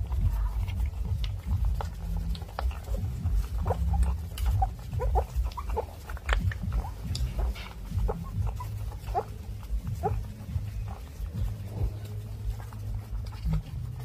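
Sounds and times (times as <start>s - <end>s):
puppies suckling: 0.0s - 14.0s
puppy grunts: 0.5s - 13.9s
puppy squeaks: 2.7s - 11.8s.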